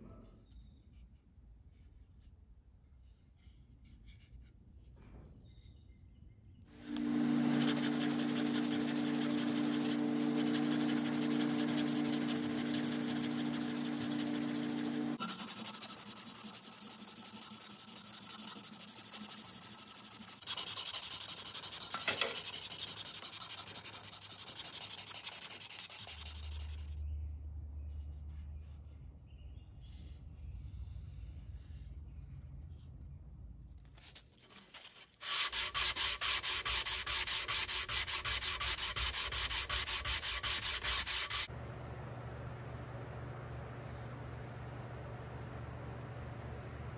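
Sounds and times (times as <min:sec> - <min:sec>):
steady hum: 0:06.7 - 0:16.0, 0:39.3 - 0:46.9
sandpaper rubbing on wood: 0:07.0 - 0:27.0, 0:35.2 - 0:41.5.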